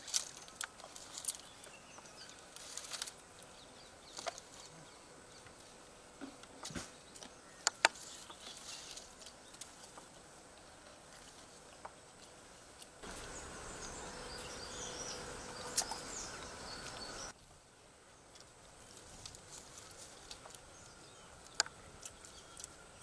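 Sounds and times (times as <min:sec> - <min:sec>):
steady outdoor background: 0:00.0 - 0:23.0.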